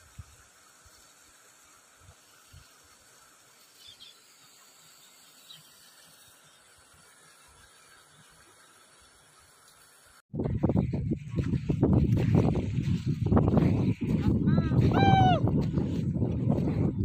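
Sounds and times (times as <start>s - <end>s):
open-air ambience hiss: 0.0s - 10.2s.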